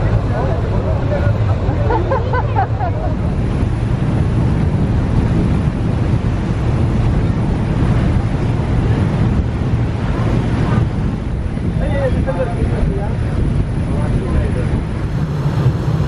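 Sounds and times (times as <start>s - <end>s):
low engine rumble: 0.0s - 16.0s
water rushing along hull: 0.0s - 16.0s
wind buffeting microphone: 0.0s - 16.0s.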